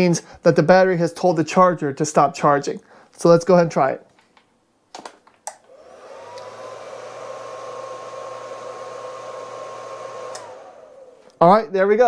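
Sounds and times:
charger cooling fan whirring: 5.7 - 11.5.

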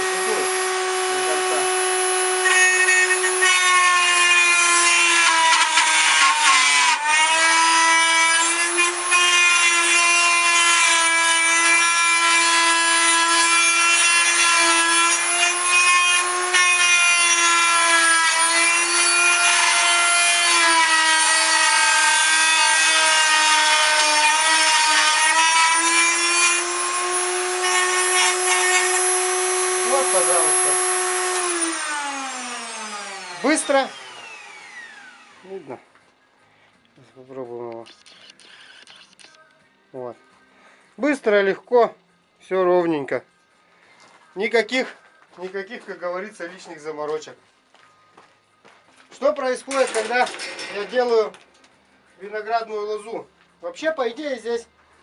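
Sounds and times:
electric motor high whine: 0.0 - 3.7, 28.3 - 35.5
metal grinding against burr: 49.7 - 51.4.

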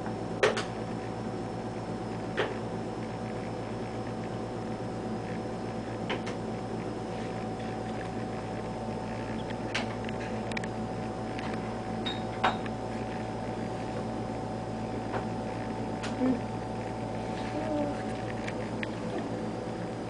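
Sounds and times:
fan and electronics hum: 0.0 - 20.0.

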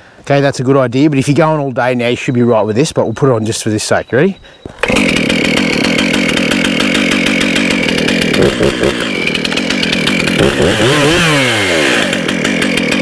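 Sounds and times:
chainsaw running: 4.6 - 13.0.

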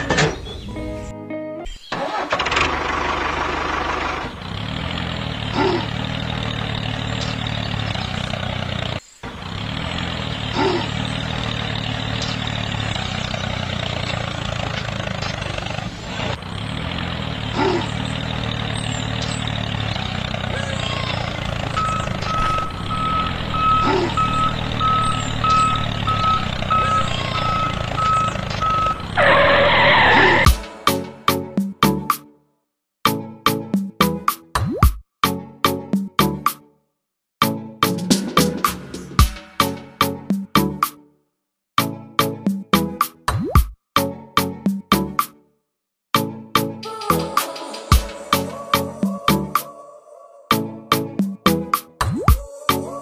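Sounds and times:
tractor engine idling: 2.0 - 30.8
low motor hum: 2.5 - 29.5
reversing alarm beeping: 20.8 - 29.6.

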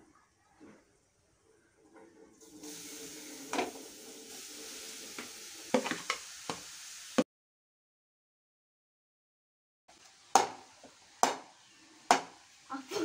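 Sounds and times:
carrot sizzling in hot fat: 2.4 - 7.3, 9.9 - 13.0.

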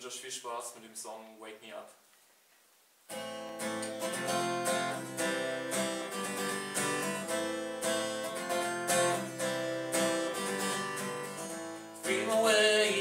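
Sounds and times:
acoustic guitar strumming: 3.1 - 13.0.

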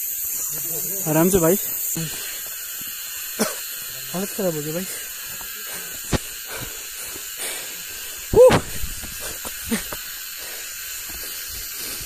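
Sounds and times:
steady hiss: 0.0 - 12.0
footsteps on rocky trail: 5.0 - 7.2, 8.5 - 10.1, 10.9 - 12.0
person exclaiming: 8.3 - 8.8.

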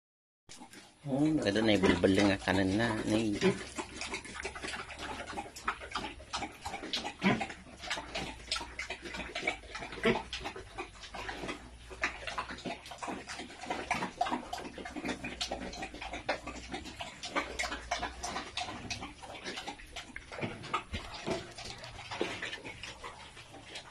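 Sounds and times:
pigs chomping feed: 0.5 - 23.9.

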